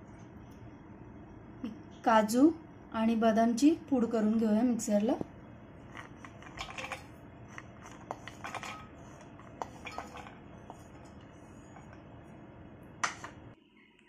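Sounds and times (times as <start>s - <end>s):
utensils and dishes clinking: 5.9s - 12.0s.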